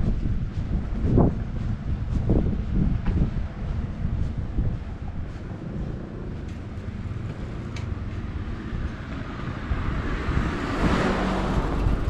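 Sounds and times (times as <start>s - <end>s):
street traffic noise: 0.0s - 12.0s
wind rumble on microphone: 0.0s - 12.0s
car passing: 1.1s - 12.0s.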